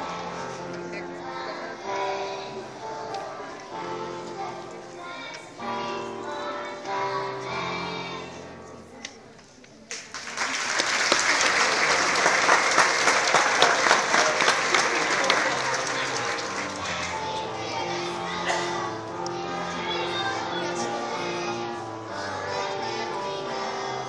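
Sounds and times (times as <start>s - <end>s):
children's choir singing: 0.0s - 9.6s, 10.3s - 24.0s
audience applause: 9.9s - 17.4s.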